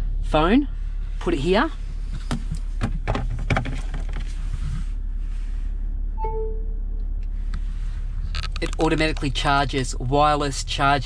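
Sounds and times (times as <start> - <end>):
low cabin rumble: 0.0 - 11.0
two-note electronic chime: 6.2 - 6.8.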